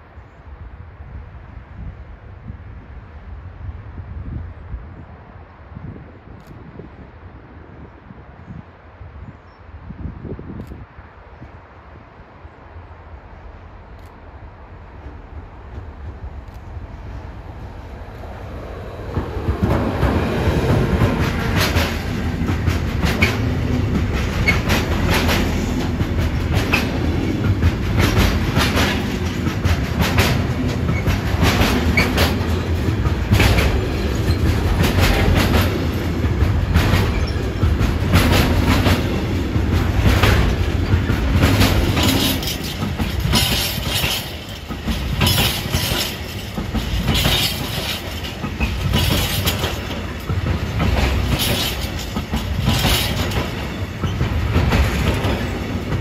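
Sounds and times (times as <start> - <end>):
freight train rumbling past: 0.0 - 56.0
wheels clacking over rail joints: 18.0 - 56.0.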